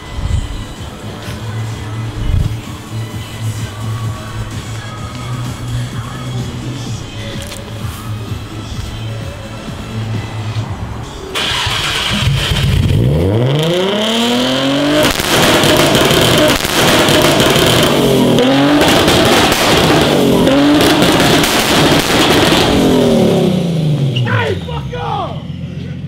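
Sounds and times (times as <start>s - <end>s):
car engine revving: 0.0s - 24.7s
exhaust pops and bangs: 14.9s - 22.9s.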